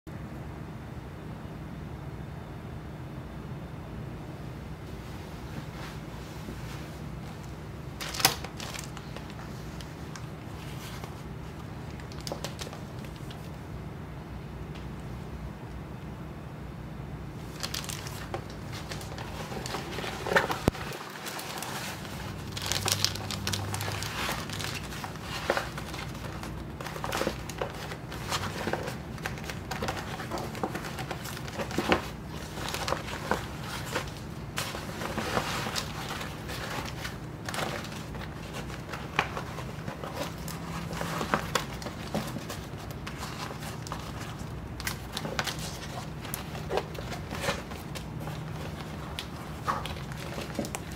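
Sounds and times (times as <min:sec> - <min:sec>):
plastic wrapping crinkling: 0:07.9 - 0:13.6, 0:17.4 - 0:50.9.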